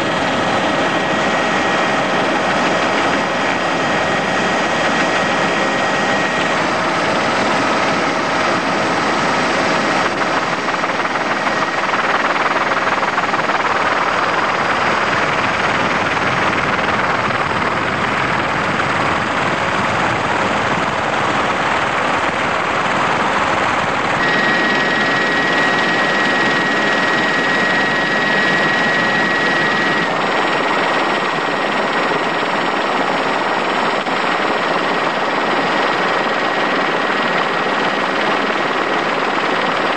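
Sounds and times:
helicopter rotor and engine noise: 0:00.0 - 0:39.9
faint steady tones: 0:24.1 - 0:39.9
thin whistle-like tone: 0:24.2 - 0:30.1.

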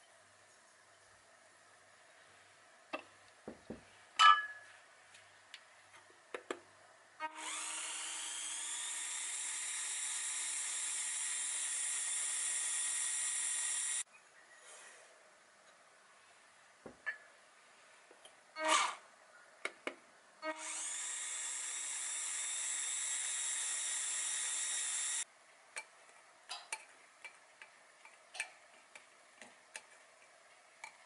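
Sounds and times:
glass clinks: 0:04.2 - 0:04.6.

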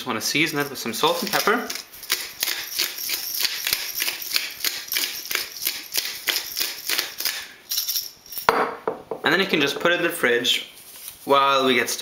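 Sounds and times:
pepper mill grinding: 0:00.4 - 0:08.1.

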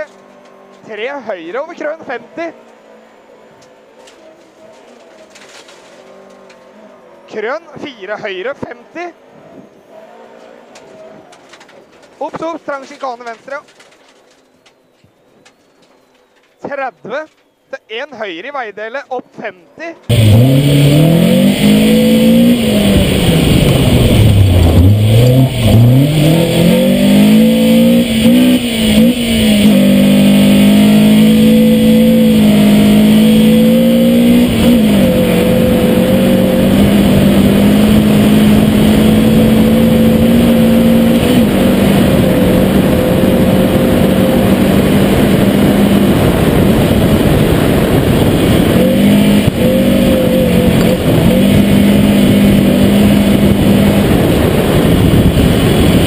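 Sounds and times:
rally car engine at full throttle: 0:00.0 - 0:07.4, 0:09.3 - 0:14.4, 0:20.0 - 0:56.0
gravel noise: 0:03.6 - 0:08.8, 0:09.9 - 0:19.2, 0:19.9 - 0:56.0
wind noise: 0:20.1 - 0:56.0.

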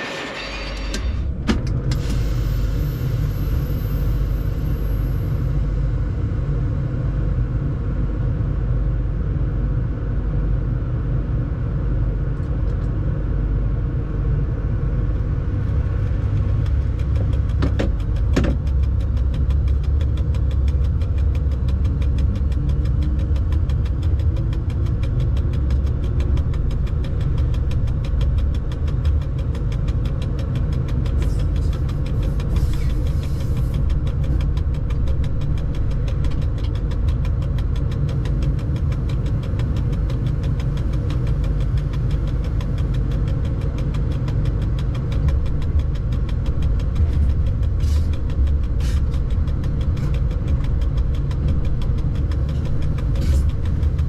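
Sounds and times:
locomotive rumbling: 0:00.0 - 0:54.0
fast even ticking: 0:16.3 - 0:54.0.

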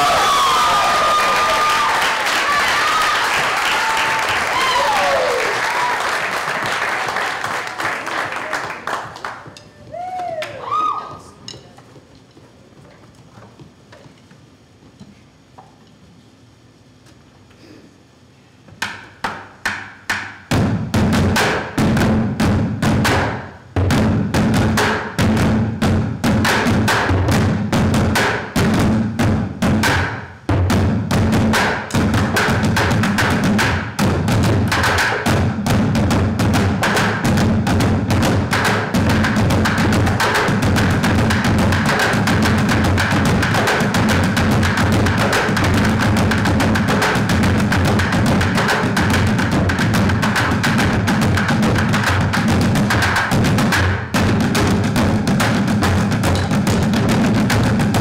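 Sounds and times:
drum ensemble playing: 0:20.5 - 0:58.0.

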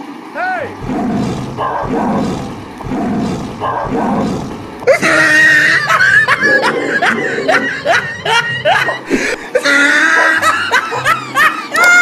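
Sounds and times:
lion roars: 0:00.7 - 0:09.1.

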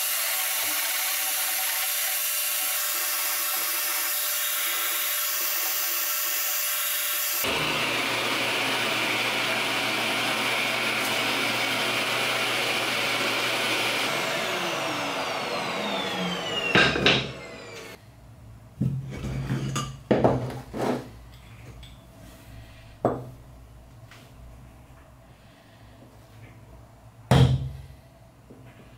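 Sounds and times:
power tool cutting wood: 0:00.0 - 0:18.0
motor winding down whine: 0:07.2 - 0:18.0
wood and tools knocking: 0:16.6 - 0:17.8.

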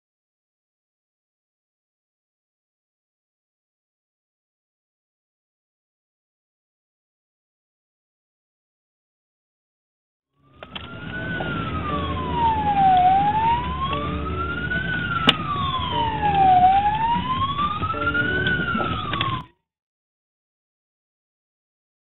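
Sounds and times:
police siren wailing: 0:10.4 - 0:19.5
vehicle engine rumble: 0:10.5 - 0:19.4.

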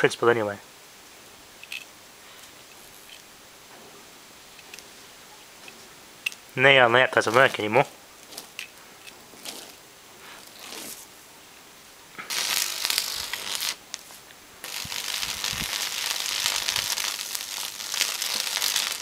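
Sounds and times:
electric arc crackling: 0:05.6 - 0:08.7, 0:09.4 - 0:09.8, 0:10.4 - 0:11.1, 0:12.2 - 0:19.0.

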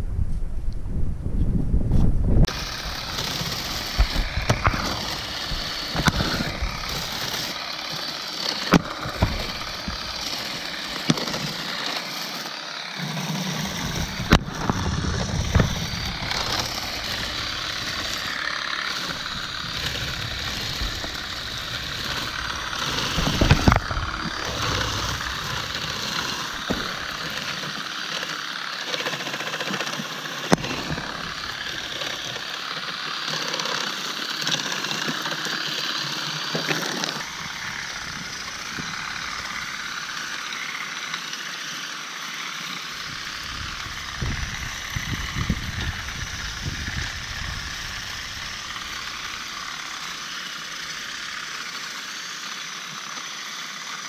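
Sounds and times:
sharp clicks and knocks: 0:02.5 - 0:07.6, 0:13.6 - 0:27.7
olive shaker running: 0:02.5 - 0:54.0.

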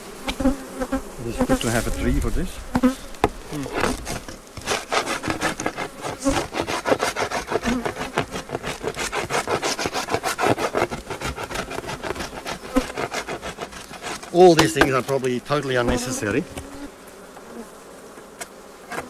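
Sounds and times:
metal tool scraping wooden board: 0:03.2 - 0:16.9.

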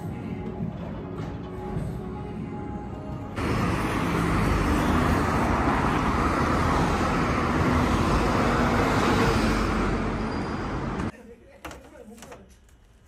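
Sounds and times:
street traffic passing: 0:00.1 - 0:11.1.

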